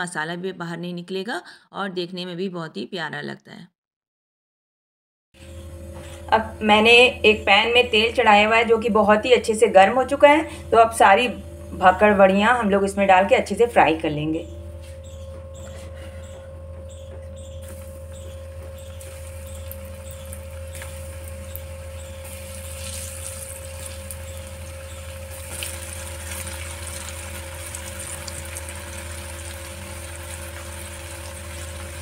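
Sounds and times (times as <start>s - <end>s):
steady low hum: 5.4s - 32.0s
food deep-frying in hot oil: 18.8s - 32.0s.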